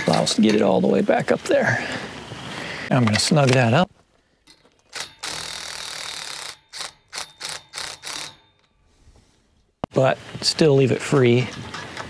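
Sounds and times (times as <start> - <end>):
power driver tightening bolt: 4.5 - 8.7.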